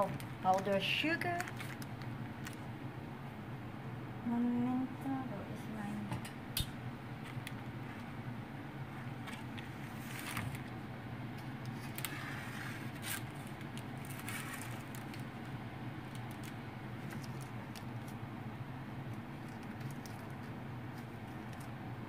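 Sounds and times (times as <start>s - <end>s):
sprinkles clicking and rustling: 0.0s - 2.7s, 12.9s - 18.2s, 19.1s - 21.8s
steady low hum: 0.0s - 22.0s
spatula scraping on baking paper: 11.7s - 15.0s.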